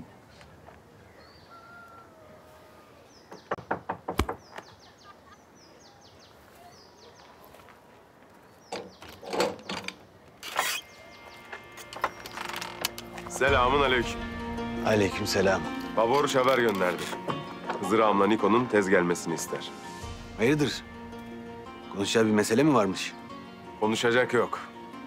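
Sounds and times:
small birds chirping: 0.3 - 13.5
knocking on a wooden door: 3.3 - 4.4
door unbolted and opened: 8.7 - 10.8, 11.8 - 13.2.

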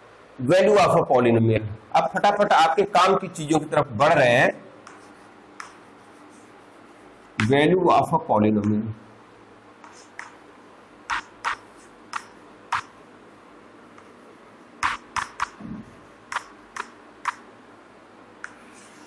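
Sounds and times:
chalk tapping on chalkboard: 4.8 - 7.6, 9.8 - 10.4, 11.1 - 13.0, 14.8 - 15.6, 16.3 - 17.4.

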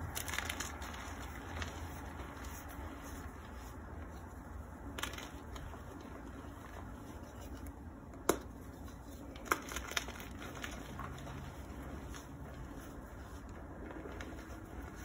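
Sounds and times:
soft powdery crunching: 0.0 - 15.0
small cracks: 9.3 - 11.4.

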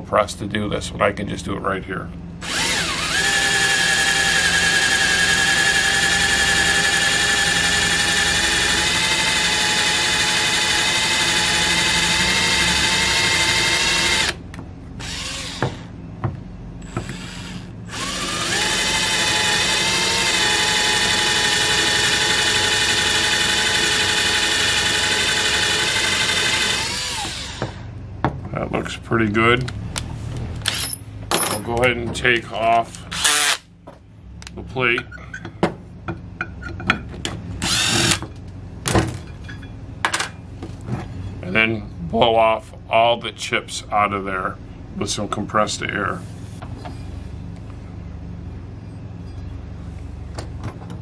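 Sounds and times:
power drill boring into metal: 2.4 - 14.4, 15.0 - 15.7, 16.8 - 27.6, 33.1 - 33.6, 37.6 - 38.2.

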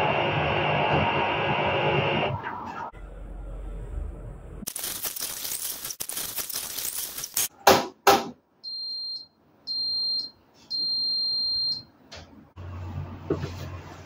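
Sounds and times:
washing machine beeps: 8.6 - 12.0.

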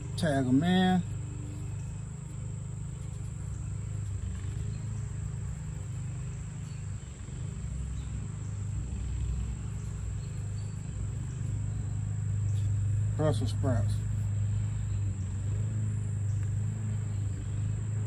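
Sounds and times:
high-pitched insect drone: 0.0 - 18.0
low continuous rumble: 0.0 - 18.0.

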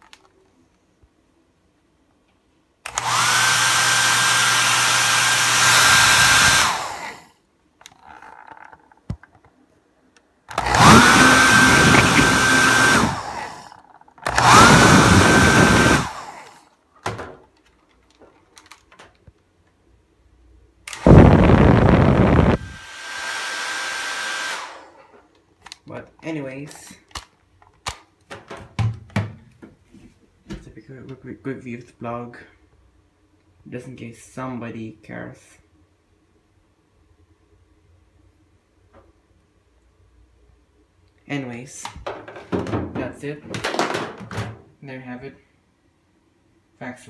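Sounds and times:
hair dryer motor whine: 2.9 - 7.3, 10.5 - 13.7, 14.3 - 16.6, 20.9 - 25.0
rush of air: 21.0 - 22.8.

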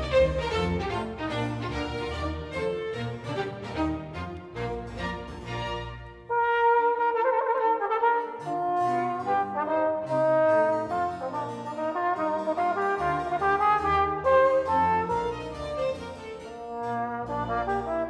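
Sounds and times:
string orchestra playing: 0.0 - 18.0
trombone solo melody: 6.3 - 16.0, 16.6 - 18.0.

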